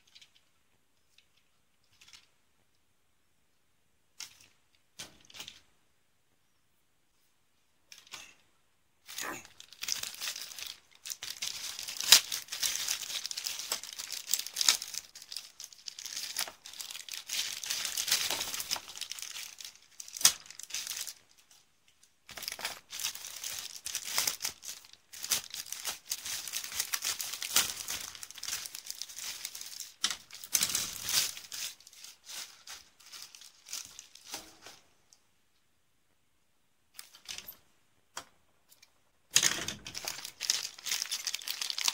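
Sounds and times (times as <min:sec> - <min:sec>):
plastic bags crinkling: 0:09.1 - 0:21.6, 0:22.3 - 0:34.9, 0:39.3 - 0:41.9.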